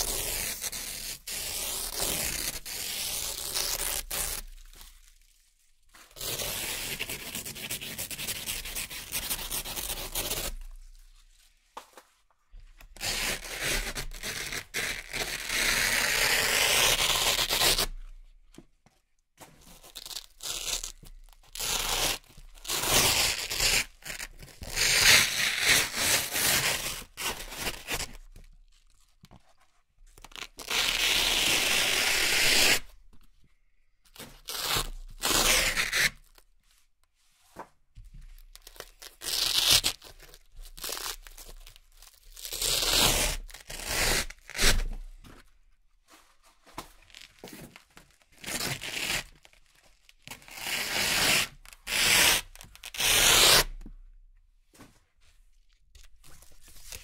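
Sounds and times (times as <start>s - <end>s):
velcro ripping: 0.0s - 4.6s, 13.0s - 17.9s, 19.9s - 28.2s, 30.3s - 32.9s, 34.4s - 36.4s, 38.6s - 44.9s, 48.4s - 49.5s, 50.3s - 53.8s.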